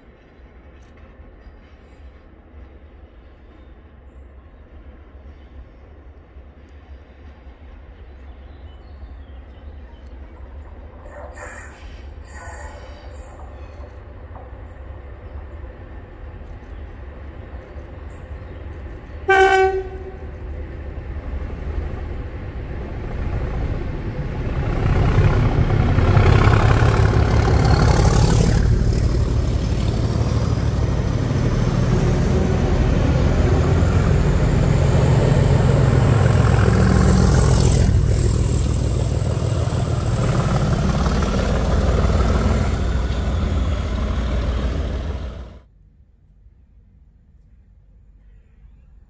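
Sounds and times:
diesel locomotive engine: 0.0s - 45.7s
train wheels on rails: 0.0s - 45.7s
locomotive horn toot: 19.2s - 20.4s.

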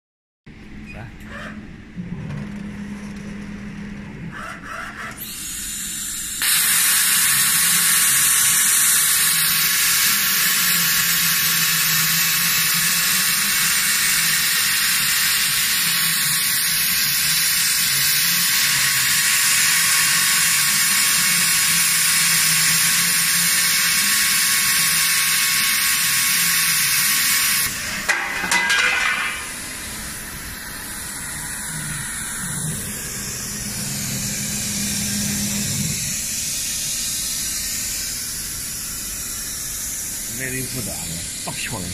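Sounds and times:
plasma torch cutting hiss: 5.2s - 41.9s
low machine hum: 27.7s - 41.9s.

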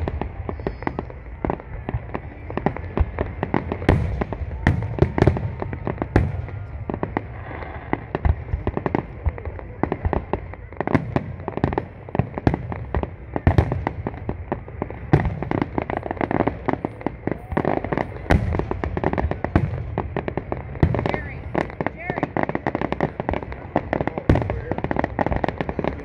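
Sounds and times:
fireworks bursting: 0.0s - 26.0s
fireworks crackling: 0.0s - 26.0s.

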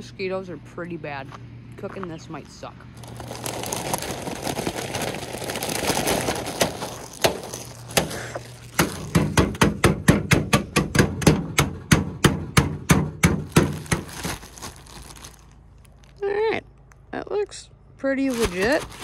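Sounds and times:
chips pouring into plastic bag: 3.0s - 9.4s, 13.4s - 16.2s, 18.3s - 19.0s
pot pounding bagged chips: 3.0s - 15.4s, 18.3s - 19.0s.

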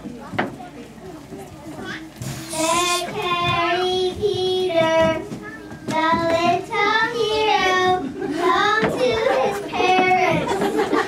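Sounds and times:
children singing: 2.5s - 5.2s, 5.9s - 10.6s.

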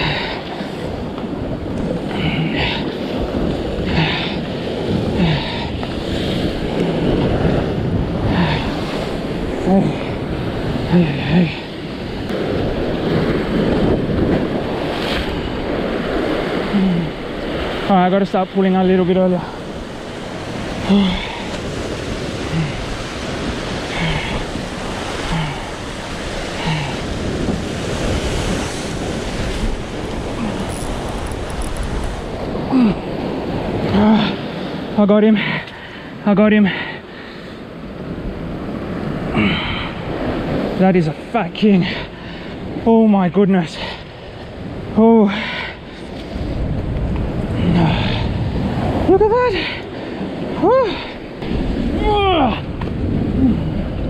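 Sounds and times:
wind buffeting microphone: 0.0s - 43.0s, 43.7s - 54.0s
ocean swell breaking on rocks: 0.0s - 54.0s.

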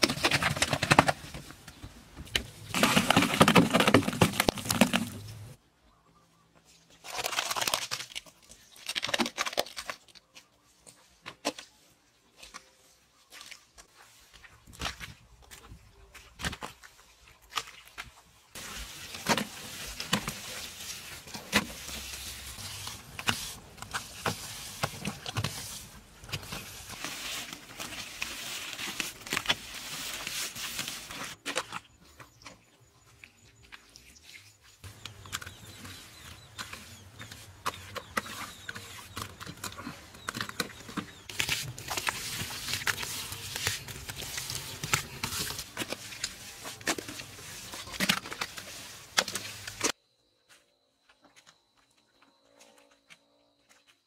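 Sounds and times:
trowel scraping wet mortar: 35.0s - 49.9s.

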